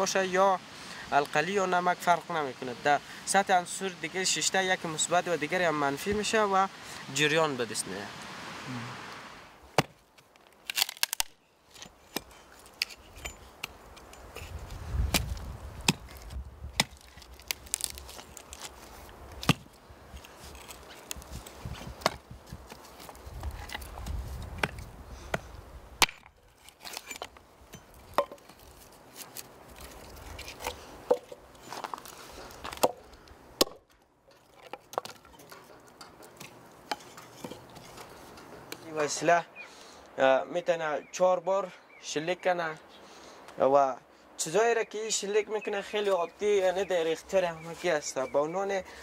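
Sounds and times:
hatchet chopping firewood: 0:09.7 - 0:32.0, 0:32.6 - 0:38.1.

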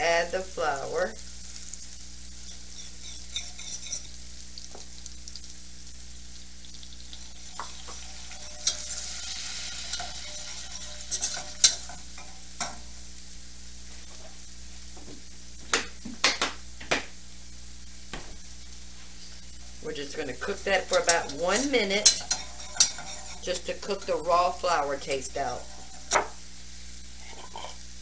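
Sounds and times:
pan sizzling: 0:00.0 - 0:28.0
whisk stirring in saucepan: 0:02.7 - 0:04.1, 0:07.4 - 0:12.8, 0:20.3 - 0:26.4
whisk clicking against pan: 0:22.0 - 0:23.4.

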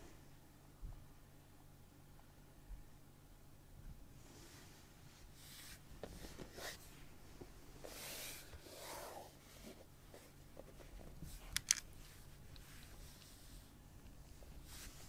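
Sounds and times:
small clicks: 0:11.5 - 0:11.9.

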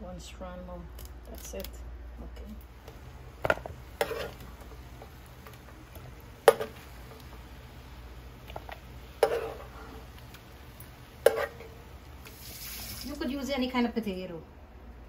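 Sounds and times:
low steady hum: 0:00.0 - 0:15.0
metal spoon clanking on pan: 0:03.4 - 0:04.4, 0:06.4 - 0:07.3, 0:08.5 - 0:09.7, 0:11.2 - 0:11.8.

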